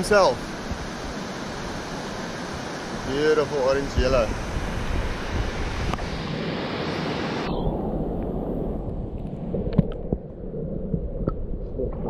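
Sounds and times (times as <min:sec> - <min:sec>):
rushing river water: 0:00.0 - 0:07.5
wind on microphone: 0:00.0 - 0:12.0
muffled underwater sound: 0:09.4 - 0:12.0.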